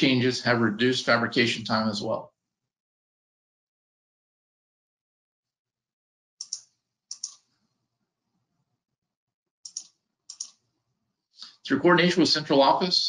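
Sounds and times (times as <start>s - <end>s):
computer clicks: 6.4s - 7.5s, 9.6s - 10.6s.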